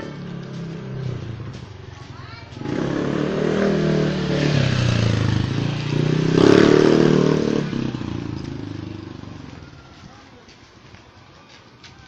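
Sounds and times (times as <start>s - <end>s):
small motorcycle engine passing: 0.0s - 9.8s.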